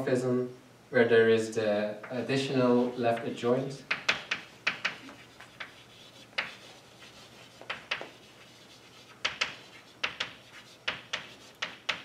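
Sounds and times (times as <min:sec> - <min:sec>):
chalk tapping on blackboard: 0:03.1 - 0:12.0
chalk scratching: 0:03.9 - 0:12.0.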